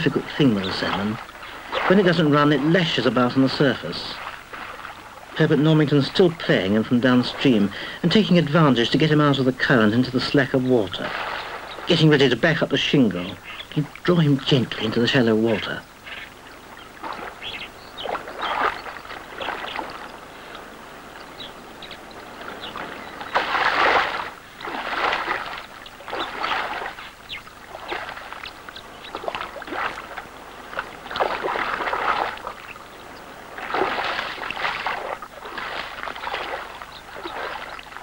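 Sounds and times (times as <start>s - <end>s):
fish splashing in water: 0.7s - 5.5s, 11.0s - 12.1s, 16.0s - 21.2s, 22.2s - 38.0s.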